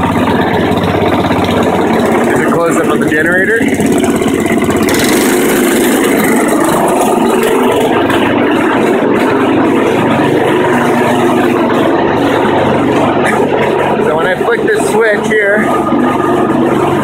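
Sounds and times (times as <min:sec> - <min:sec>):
lawnmower engine running: 0:00.0 - 0:17.0.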